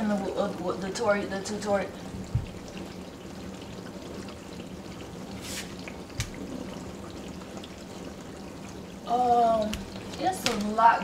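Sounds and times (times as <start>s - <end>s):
background hiss: 5.0s - 7.0s.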